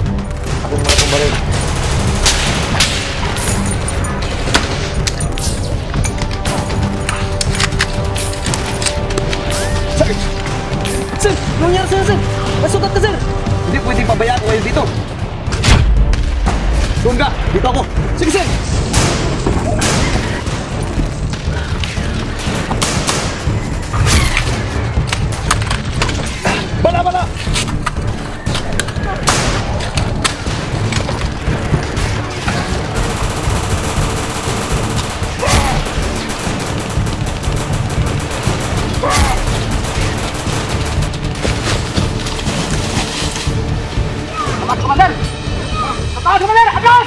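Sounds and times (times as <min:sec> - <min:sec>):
rifle gunshots: 0:32.6 - 0:41.9.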